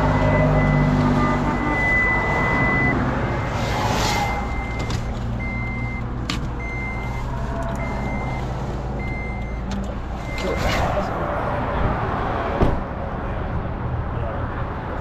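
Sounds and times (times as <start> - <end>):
high electronic warning beep: 0.0 - 10.8.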